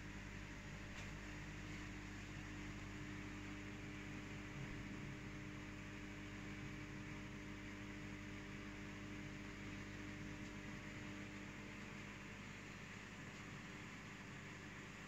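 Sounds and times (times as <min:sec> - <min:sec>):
aquarium pump and filter humming: 0:00.0 - 0:15.0.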